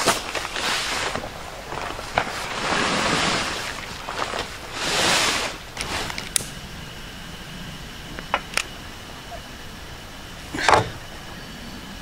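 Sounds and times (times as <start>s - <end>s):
air mattress scraping against tent: 0.0s - 6.2s.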